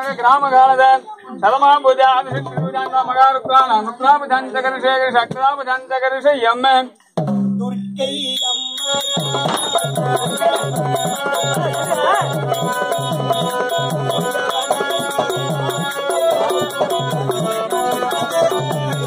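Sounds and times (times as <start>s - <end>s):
harmonium melody: 8.4s - 19.0s
low drum beat: 9.2s - 15.9s.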